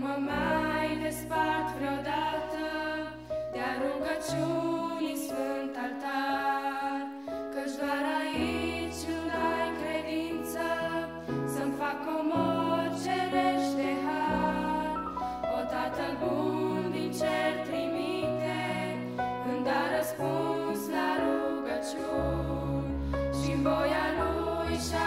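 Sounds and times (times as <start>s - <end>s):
women singing a hymn: 0.0s - 25.0s.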